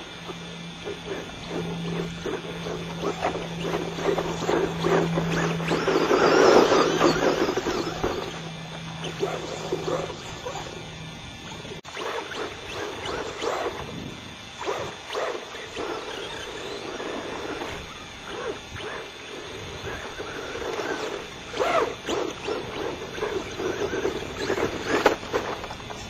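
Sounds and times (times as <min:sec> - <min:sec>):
radio-controlled truck motor: 0:00.0 - 0:26.0
tyres on dirt: 0:00.0 - 0:26.0.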